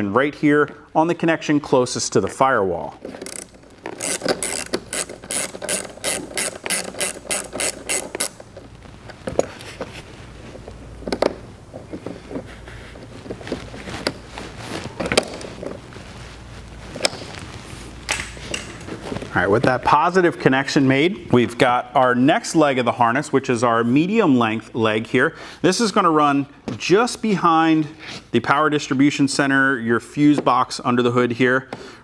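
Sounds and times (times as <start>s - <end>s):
ratchet wrench clicking: 3.2s - 8.4s
small metal parts clicking: 3.2s - 8.5s.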